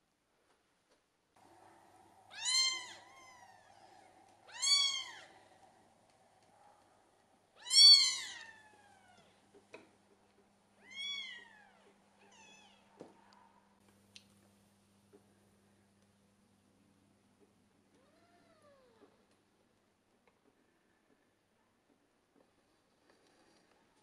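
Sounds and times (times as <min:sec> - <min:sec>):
cat meowing: 0:02.3 - 0:05.4, 0:07.6 - 0:09.3, 0:10.8 - 0:12.9.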